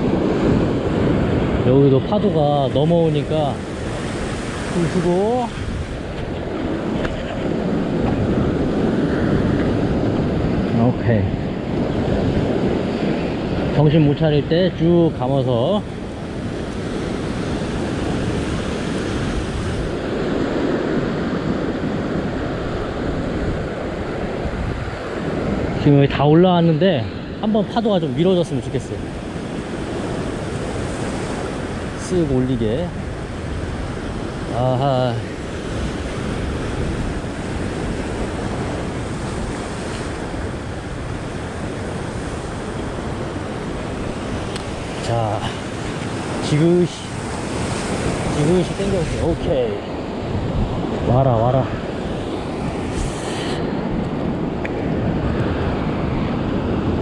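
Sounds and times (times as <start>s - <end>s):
wind buffeting microphone: 0.0s - 57.0s
surf breaking over rocks: 25.2s - 57.0s.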